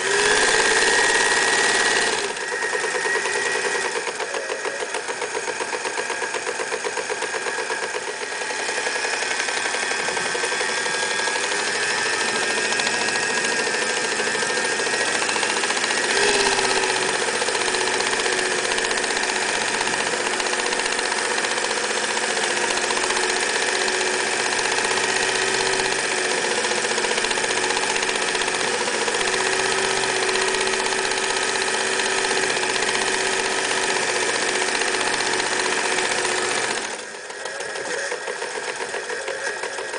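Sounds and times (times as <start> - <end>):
sewing machine stitching: 0.0 - 39.9.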